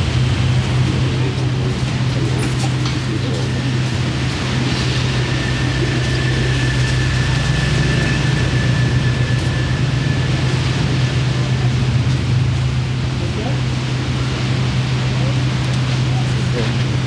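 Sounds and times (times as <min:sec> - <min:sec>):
low motor drone: 0:00.0 - 0:17.0
faint high whine: 0:03.9 - 0:11.9.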